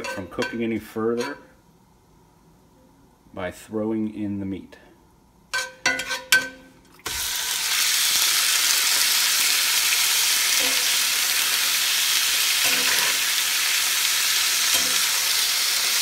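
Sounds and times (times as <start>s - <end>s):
spatula clanking on skillet: 0.0s - 1.4s, 5.5s - 6.6s, 10.6s - 11.0s, 12.6s - 13.3s, 14.6s - 15.4s
meat sizzling in oil: 7.0s - 16.0s.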